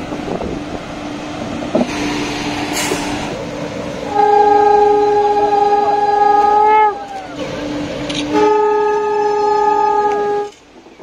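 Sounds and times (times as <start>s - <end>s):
short hiss of air: 1.9s - 3.4s
locomotive horn: 4.0s - 10.7s.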